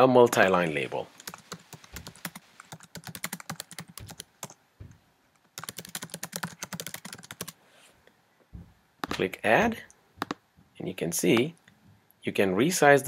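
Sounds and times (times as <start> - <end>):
typing on computer keyboard: 1.2 - 4.6, 5.5 - 7.6, 10.2 - 10.4.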